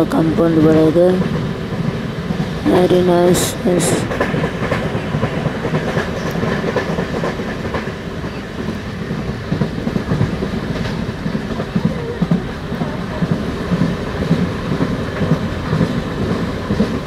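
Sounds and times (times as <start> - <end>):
train rumble: 0.0 - 17.0
train wheels clattering: 0.0 - 17.0.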